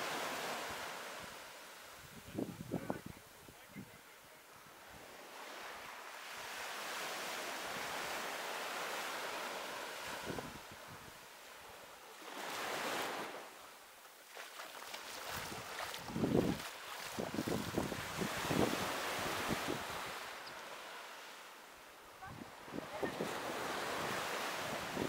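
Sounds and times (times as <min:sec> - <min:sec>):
sea waves on a beach: 0:00.0 - 0:25.0
wind buffeting microphone: 0:15.4 - 0:20.2.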